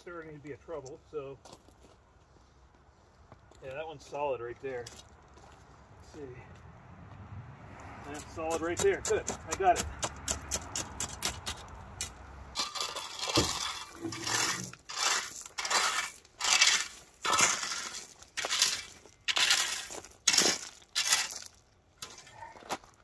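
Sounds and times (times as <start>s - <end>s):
rake scraping through stones: 10.5s - 22.9s.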